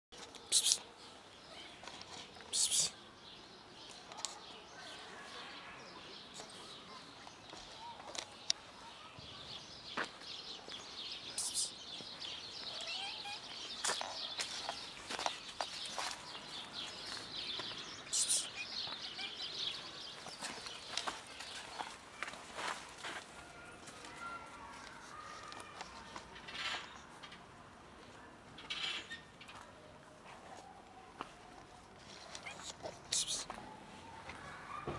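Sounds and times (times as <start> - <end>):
small birds chirping: 0.2 - 22.8, 30.6 - 34.9.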